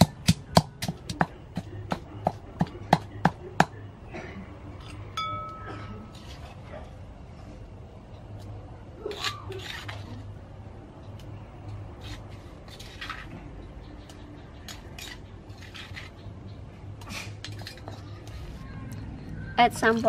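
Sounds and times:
pestle rasping scrapes: 14.7s - 16.2s.

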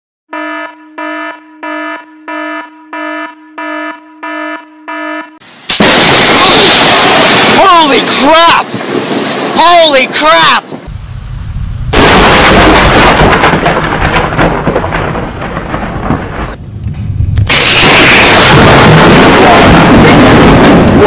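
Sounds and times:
thunder rumbling: 5.8s - 9.6s, 10.7s - 21.0s.

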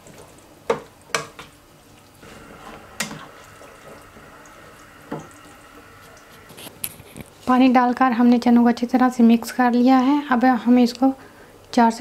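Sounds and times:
liquid sloshing: 1.8s - 7.5s.

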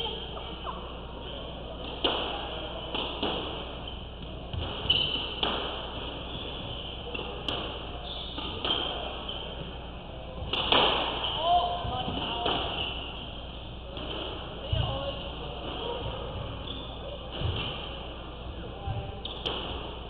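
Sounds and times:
racquets hitting ball: 1.9s - 9.8s, 10.4s - 12.9s, 17.3s - 18.0s, 18.9s - 20.0s
squash ball striking walls: 4.3s - 6.4s, 10.4s - 12.8s, 17.3s - 18.0s.

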